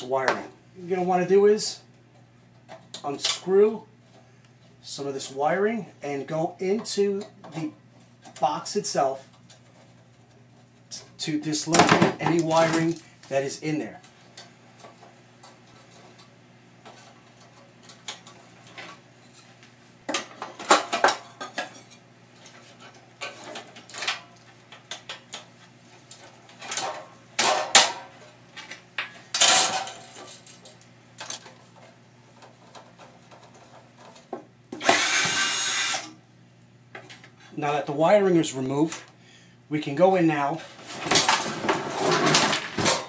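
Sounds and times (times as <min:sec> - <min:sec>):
cordless drill running: 0:34.8 - 0:36.1.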